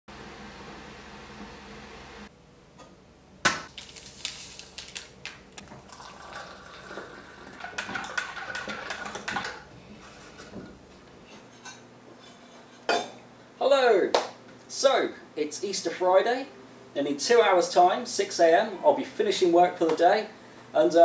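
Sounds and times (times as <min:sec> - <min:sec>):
rustling: 0:03.7 - 0:05.7
hot water pouring into a metal mug: 0:05.6 - 0:09.3.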